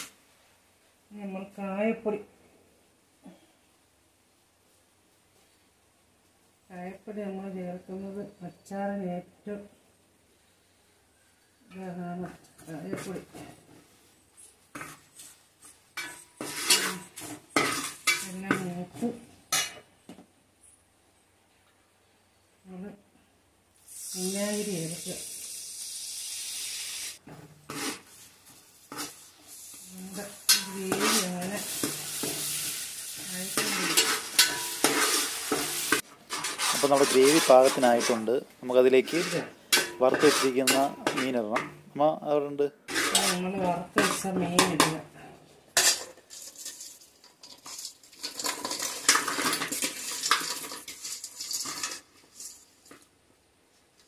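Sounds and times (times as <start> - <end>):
gravy sizzling in a pan: 0.0 - 0.2, 12.4 - 19.9, 23.7 - 42.0, 45.6 - 53.0
spoon scraping a pan: 14.4 - 19.9, 26.7 - 41.9, 42.9 - 45.1, 45.7 - 53.0
person speaking: 36.7 - 45.3.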